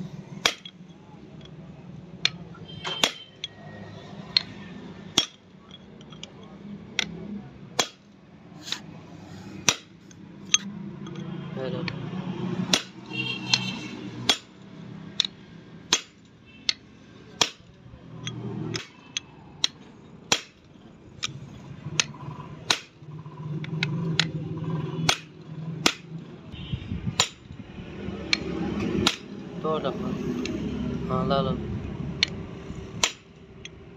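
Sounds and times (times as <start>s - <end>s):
hammer striking steel chisel: 0.4s - 0.9s, 2.2s - 3.6s, 5.1s - 6.3s, 7.8s - 8.8s, 9.6s - 11.2s, 12.7s - 23.0s, 25.0s - 26.1s, 27.1s - 27.5s, 28.2s - 29.4s, 33.0s - 33.8s.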